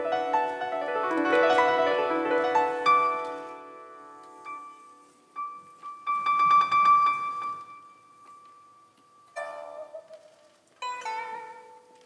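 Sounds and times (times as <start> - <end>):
piano: 0.0 - 12.0
pipa plucked notes: 5.9 - 12.0.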